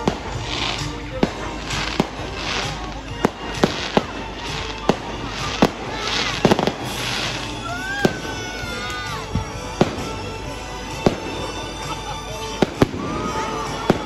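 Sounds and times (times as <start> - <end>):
fireworks bangs: 0.0 - 14.0
fireworks crackle: 0.0 - 14.0.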